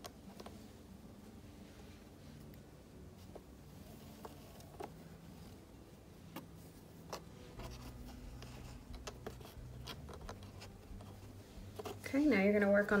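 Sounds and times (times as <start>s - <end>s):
low steady hum: 0.0s - 13.0s
cord handling clicks and rubbing: 6.3s - 12.0s.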